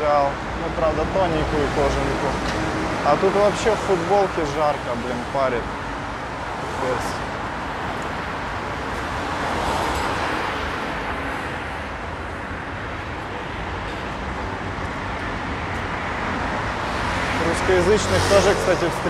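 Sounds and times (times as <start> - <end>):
city street traffic hum: 0.0 - 19.0.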